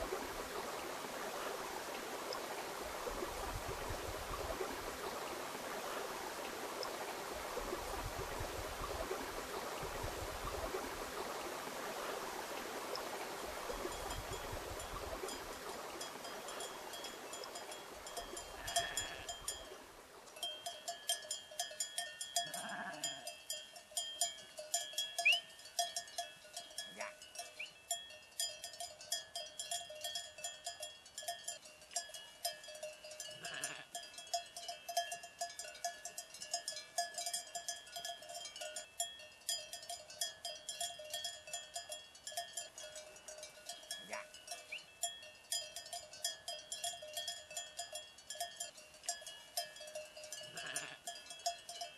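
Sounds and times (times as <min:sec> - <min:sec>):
sheep bells clinking: 0:13.7 - 0:51.9
sheep bleating: 0:18.6 - 0:19.4, 0:22.4 - 0:23.2, 0:33.4 - 0:34.0, 0:50.5 - 0:51.1.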